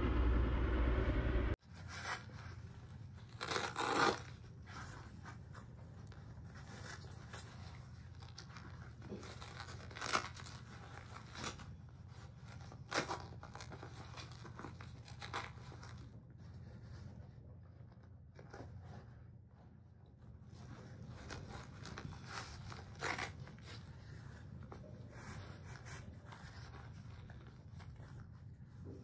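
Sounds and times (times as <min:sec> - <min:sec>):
steady low hum: 0:00.0 - 0:01.6
gear rustling and scraping: 0:00.1 - 0:29.0.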